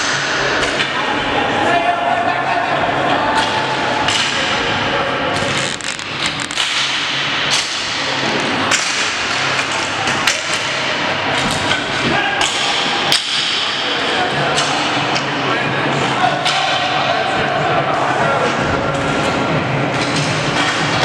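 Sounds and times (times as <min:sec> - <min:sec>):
hockey sticks clacking: 0:03.3 - 0:15.3, 0:18.4 - 0:21.0.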